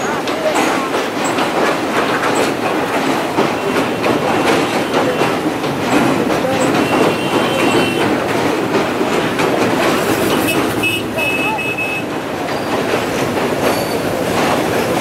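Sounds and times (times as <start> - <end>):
train wheels clattering over rail joints: 0.0 - 15.0.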